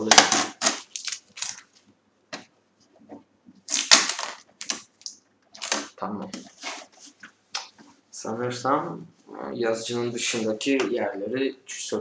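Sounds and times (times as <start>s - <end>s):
packing tape peeling off plastic: 0.4s - 1.7s, 3.7s - 5.9s.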